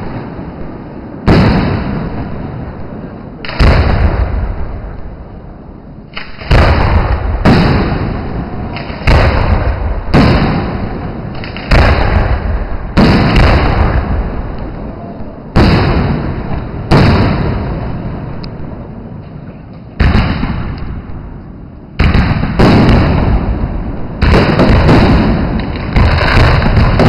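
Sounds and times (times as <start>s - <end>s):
rumbling echo: 0.0s - 27.0s
firework shells bursting: 6.1s - 14.8s.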